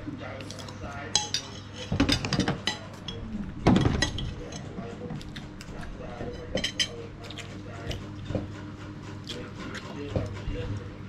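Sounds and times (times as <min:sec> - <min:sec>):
cutlery clinking on plates: 0:06.1 - 0:07.4.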